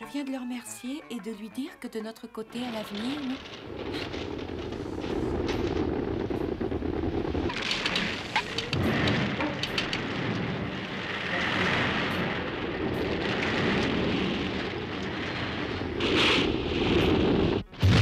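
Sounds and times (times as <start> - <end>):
rushing rumbling scraping noise: 2.6 - 18.0
sharp cracks: 2.8 - 18.0.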